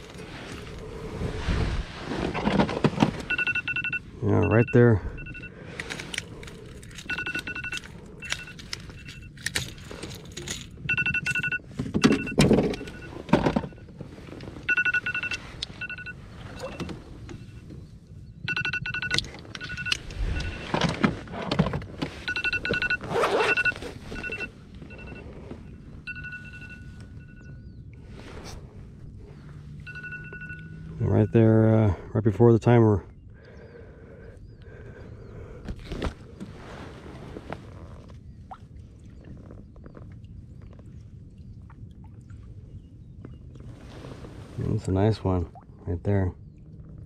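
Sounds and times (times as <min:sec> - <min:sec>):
gear handling knocks and rustles: 0:05.8 - 0:14.6, 0:19.0 - 0:25.6.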